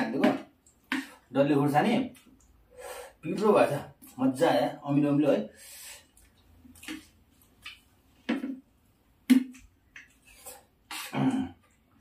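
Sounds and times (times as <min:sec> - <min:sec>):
lip smacks and chewing: 0:06.1 - 0:07.9, 0:09.3 - 0:12.0.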